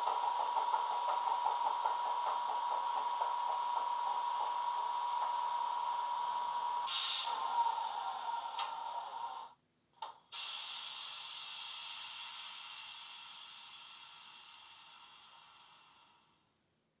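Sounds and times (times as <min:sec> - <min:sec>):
air release hiss: 0:06.8 - 0:09.4, 0:10.3 - 0:16.2.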